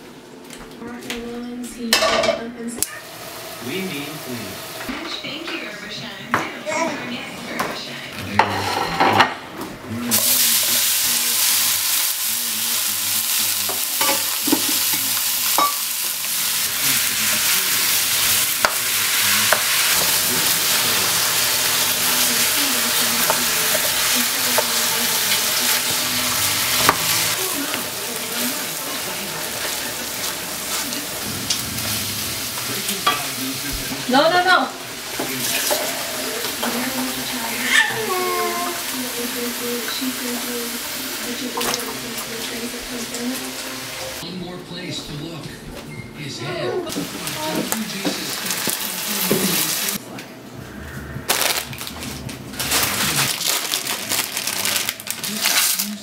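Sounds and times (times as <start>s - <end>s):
meat sizzling in a pan: 3.0s - 4.9s, 10.1s - 44.2s, 46.9s - 50.0s.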